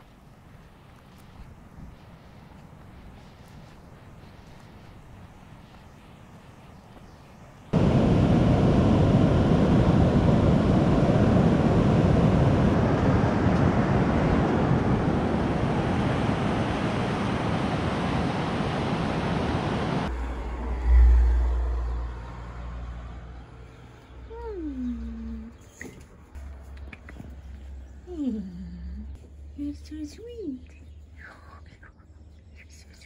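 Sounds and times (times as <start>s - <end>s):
strong wind on microphone: 7.7s - 21.6s
waves breaking on shore: 7.8s - 20.1s.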